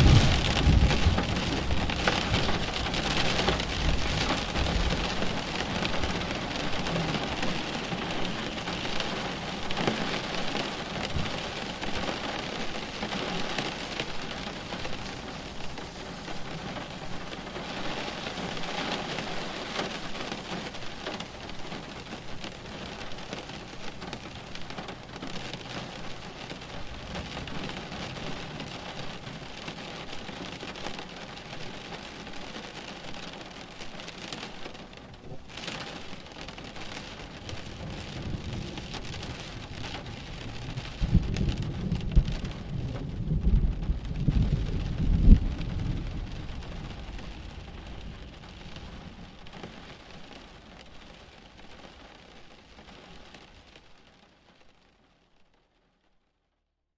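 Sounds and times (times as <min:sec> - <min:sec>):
low thunder: 0:00.0 - 0:07.6, 0:37.4 - 0:49.4
rain pattering: 0:00.0 - 0:56.4.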